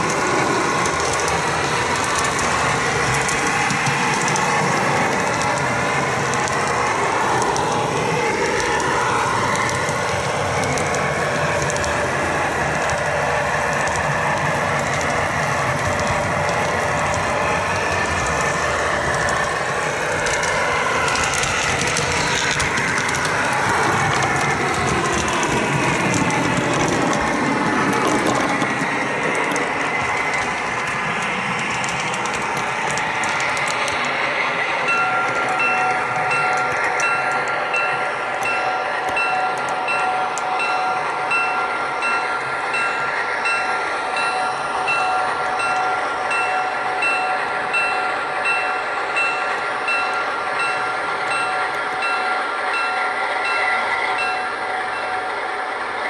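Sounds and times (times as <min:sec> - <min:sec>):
scattered clicks: 0:00.0 - 0:54.6
model train motor whirring: 0:00.0 - 0:56.0.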